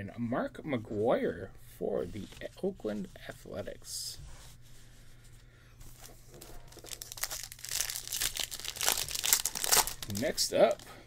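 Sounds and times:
plastic wrapper tearing and crinkling: 6.6 - 10.9.

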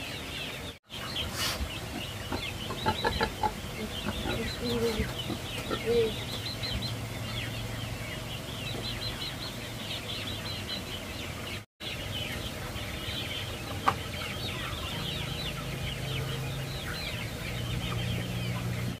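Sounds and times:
chicks peeping: 0.0 - 19.0.

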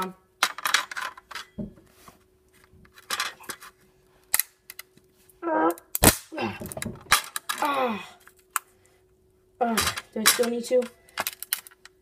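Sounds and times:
person grunting: 6.3 - 6.8, 7.6 - 8.2.

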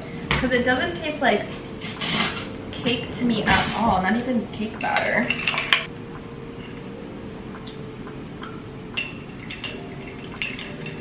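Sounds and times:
low hum: 4.0 - 11.0.

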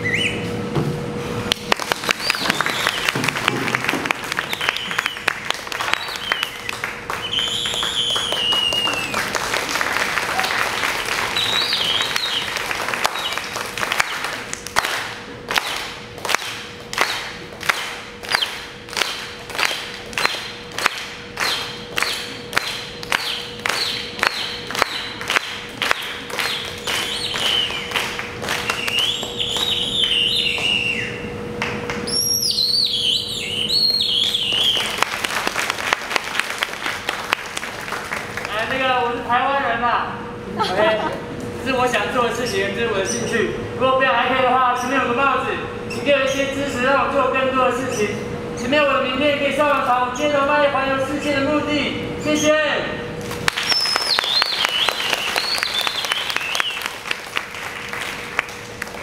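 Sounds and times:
crowd whistling: 0.0 - 0.5, 2.1 - 3.5, 4.2 - 14.4, 23.1 - 25.3, 26.3 - 31.3, 32.1 - 35.1, 53.6 - 57.1
audience applauding: 1.7 - 30.8, 34.2 - 38.8, 53.3 - 59.0.

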